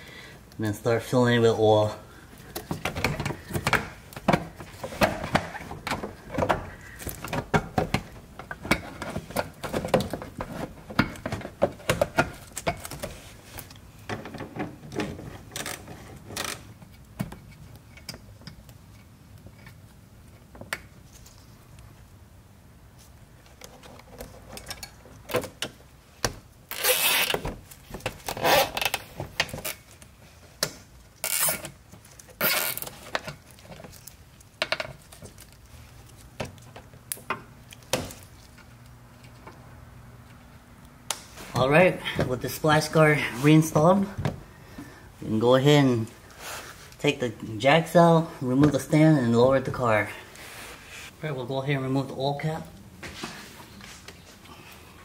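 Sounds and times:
hand tool working fasteners: 26.7s - 30.0s, 30.6s - 36.8s.

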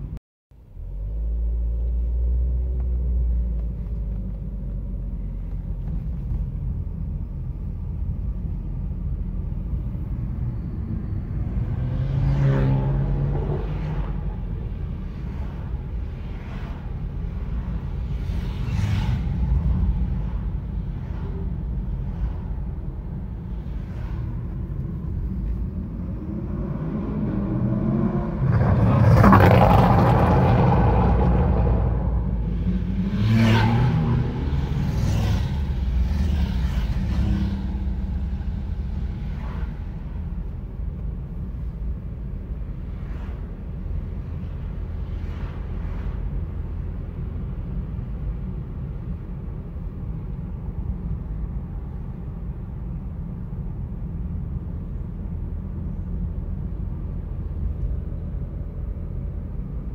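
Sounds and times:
car cabin rumble and road noise: 0.0s - 59.9s
sports car accelerating: 10.6s - 14.5s, 24.4s - 40.2s.

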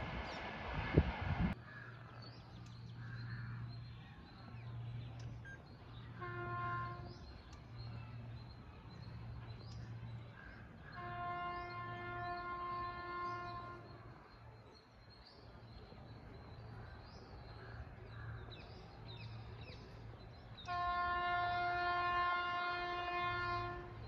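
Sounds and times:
low gusty rumble: 0.0s - 1.8s
distant locomotive horn: 6.0s - 7.5s, 10.8s - 14.2s, 20.6s - 24.0s.

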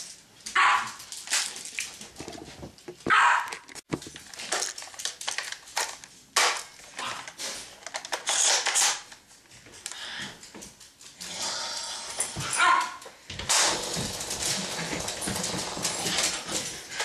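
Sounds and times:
handling and rustling: 0.0s - 9.9s
dog barking: 0.6s - 1.0s, 3.1s - 3.6s, 12.5s - 13.0s.

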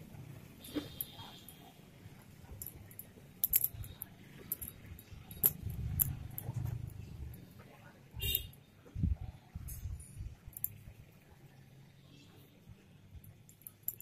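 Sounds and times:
light clicks and clinks: 2.4s - 8.6s, 9.6s - 10.9s, 13.1s - 14.0s.

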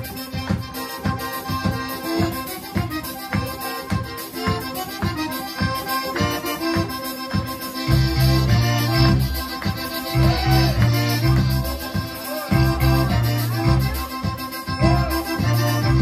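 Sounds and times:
polka band playing: 0.0s - 16.0s
sustained bass notes: 7.8s - 16.0s.

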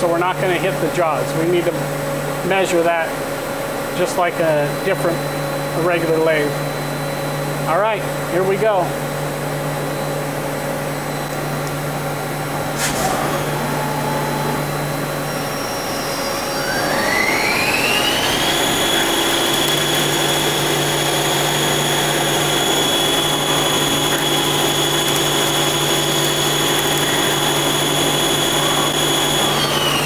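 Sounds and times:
lathe spindle drive whine: 0.0s - 8.2s, 9.0s - 30.0s
low machine hum: 0.0s - 30.0s
coolant spraying: 18.2s - 30.0s.

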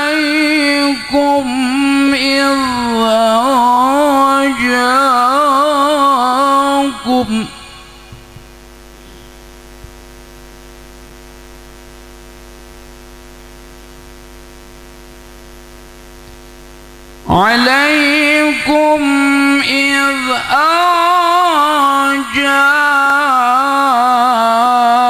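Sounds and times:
man reciting melodically: 0.0s - 8.3s, 17.3s - 25.0s
electrical mains hum: 0.0s - 25.0s.

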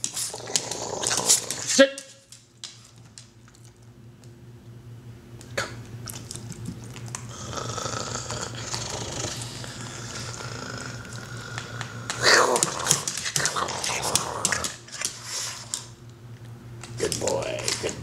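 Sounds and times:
dog licking its lips: 5.4s - 7.3s.

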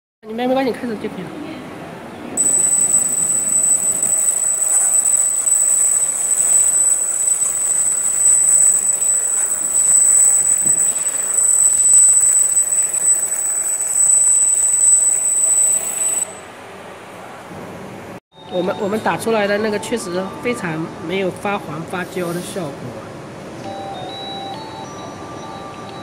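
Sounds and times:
laser machine high-pitched whine: 2.4s - 16.4s.

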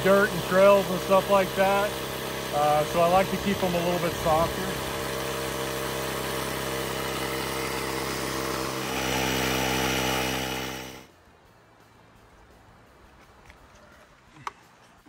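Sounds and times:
tire inflator compressor running: 0.0s - 11.1s.

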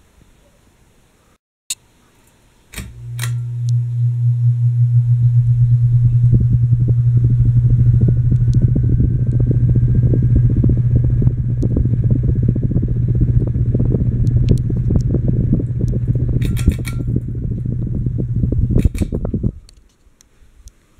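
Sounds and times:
ceiling fan humming: 0.0s - 20.9s
sharp click: 2.7s - 3.8s, 16.4s - 17.2s, 18.8s - 19.9s.

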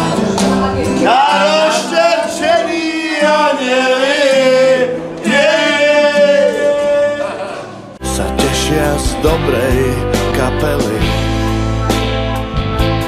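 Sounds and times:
men singing together: 1.0s - 11.1s
backing music with bass line: 8.0s - 13.0s.

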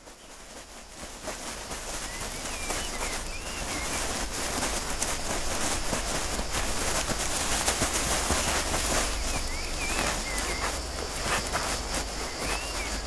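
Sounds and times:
tortoise feet scraping soil: 0.0s - 13.0s
bird chirps: 2.0s - 4.2s, 8.4s - 13.0s.

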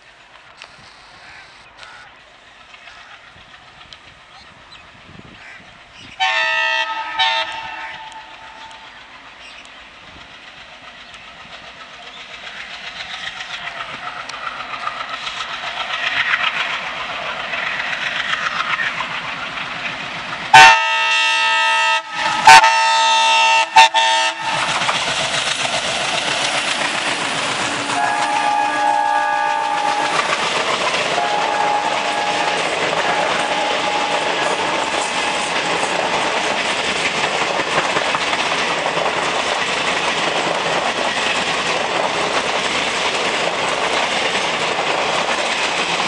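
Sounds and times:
diesel locomotive engine: 0.0s - 46.0s
train wheels clattering: 1.8s - 21.2s, 22.1s - 46.0s
locomotive horn blasts: 6.2s - 8.8s, 20.5s - 24.7s, 27.8s - 30.4s, 31.1s - 35.5s.

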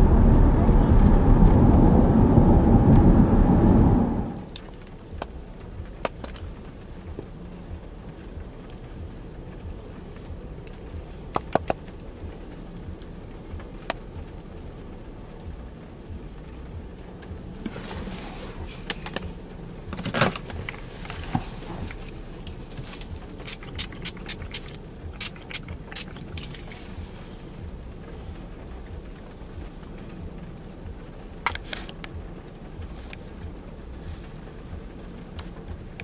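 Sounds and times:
car cabin road rumble: 0.0s - 36.0s
rustling: 17.5s - 28.7s.

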